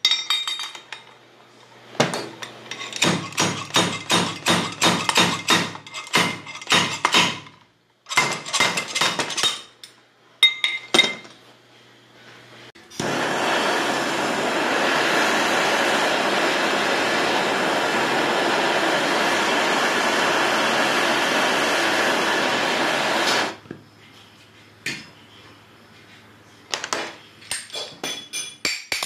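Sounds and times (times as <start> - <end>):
gas torch flame hissing: 12.9 - 23.6.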